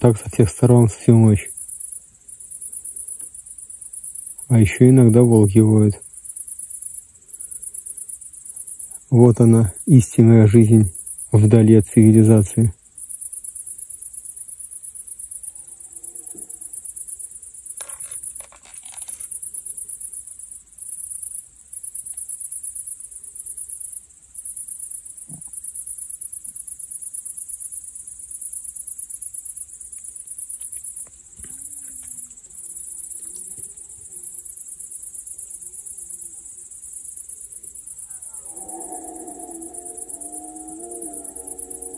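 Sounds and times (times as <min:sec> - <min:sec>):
crickets trilling: 0:00.0 - 0:41.9
distant deer bellowing: 0:15.4 - 0:16.8, 0:37.4 - 0:41.9.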